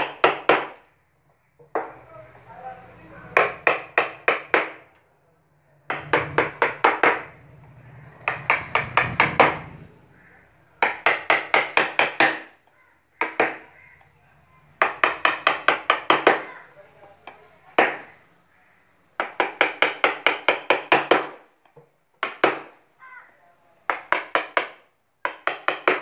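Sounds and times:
mallet striking carving gouge: 0.0 - 0.8, 3.3 - 4.8, 5.9 - 7.3, 10.8 - 12.6, 13.2 - 13.7, 14.8 - 16.5, 17.2 - 18.2, 19.2 - 21.4, 22.2 - 22.8, 23.9 - 26.0.

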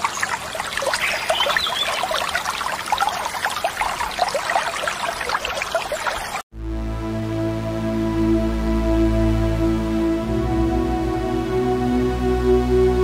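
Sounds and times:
stream rushing over rocks: 0.0 - 6.4.

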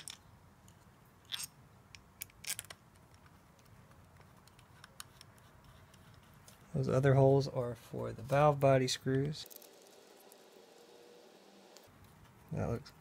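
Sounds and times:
small metal parts clicking: 0.0 - 3.3, 9.4 - 10.4.

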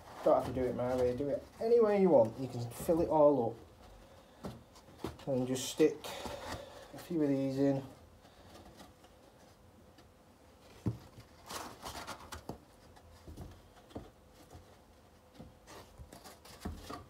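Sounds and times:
cardboard rustling and scraping: 0.0 - 9.7, 10.5 - 17.0.

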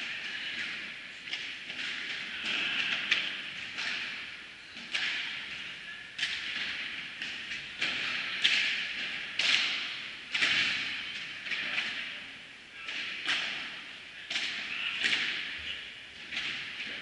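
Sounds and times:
ball bouncing on court and glass: 4.8 - 5.3
ball struck by rackets: 4.8 - 5.6.

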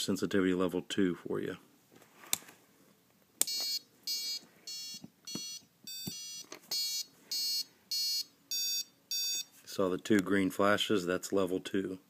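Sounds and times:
short high-pitched buzzer beeps: 3.5 - 9.5.

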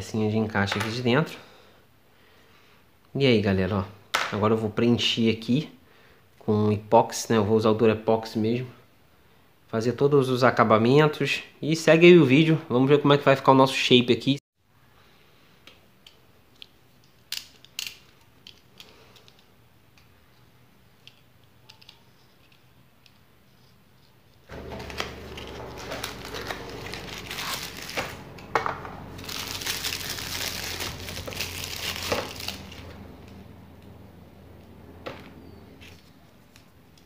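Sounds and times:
plastic pieces clicking: 16.0 - 20.1
plastic wrapping crinkling: 24.4 - 33.4.

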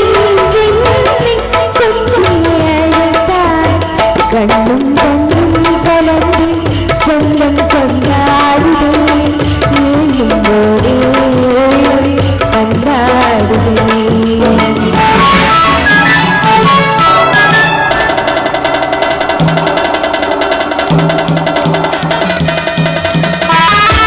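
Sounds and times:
girl singing into a microphone: 0.0 - 15.5
live band playing: 0.0 - 24.0
steady drum beat: 0.0 - 24.0.

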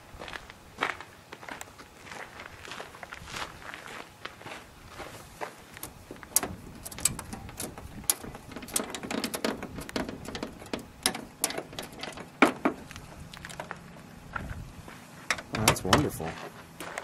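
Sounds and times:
metal clicks and knocks of bonnet latches: 5.8 - 13.8, 15.3 - 16.1.

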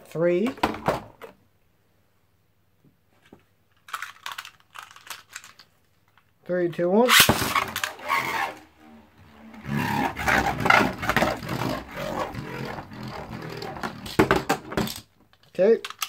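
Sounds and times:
spinning top sharp clicks: 7.1 - 8.6
spinning top whirring scrape: 7.1 - 14.9.

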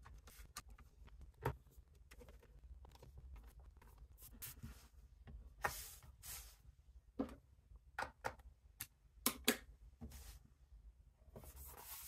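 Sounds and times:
brushing sounds: 5.6 - 6.6, 11.4 - 12.0.

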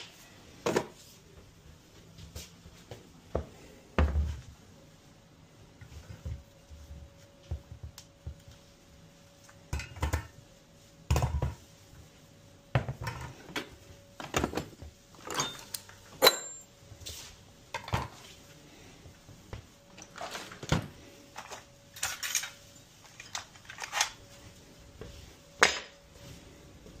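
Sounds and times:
faint steady hum: 0.0 - 27.0
metal tools knocking and clinking: 15.2 - 16.7.

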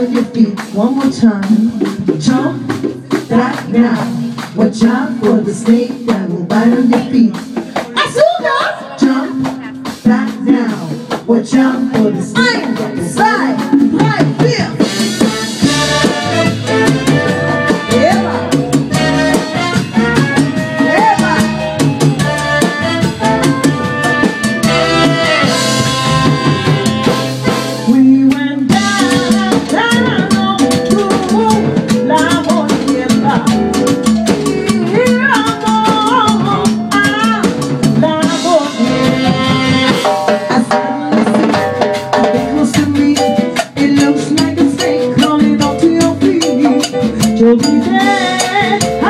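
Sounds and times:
live salsa band playing: 0.0 - 49.0
saxophone: 14.8 - 33.5, 38.0 - 41.8.

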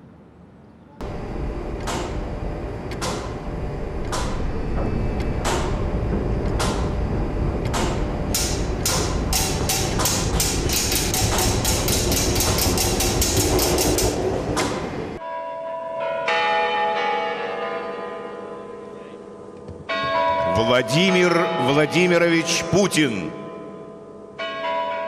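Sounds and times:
clock mechanism clanking: 7.6 - 15.2.

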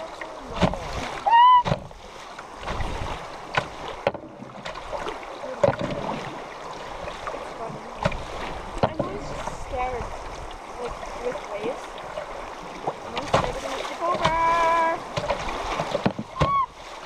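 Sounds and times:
paddles knocking against canoe: 0.0 - 17.0
water rushing along a hull: 0.0 - 17.0
wind on microphone: 0.5 - 3.9.

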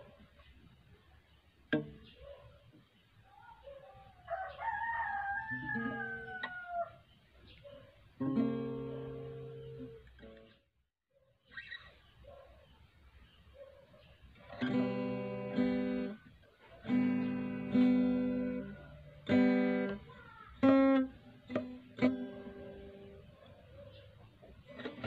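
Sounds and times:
acoustic guitar notes: 1.7 - 2.1, 8.2 - 10.6, 14.4 - 23.4, 24.5 - 25.0.

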